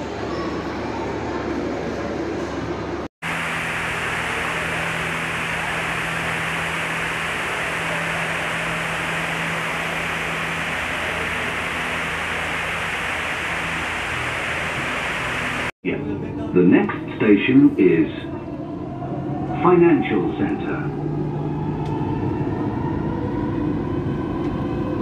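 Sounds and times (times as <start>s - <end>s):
water falling down waterfall wall: 3.2s - 15.8s.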